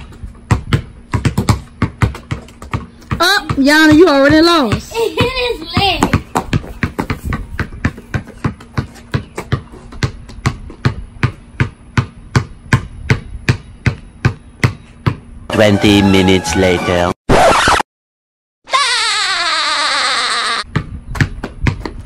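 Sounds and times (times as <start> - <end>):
basketball bouncing on concrete: 0.0 - 15.3, 20.6 - 22.0.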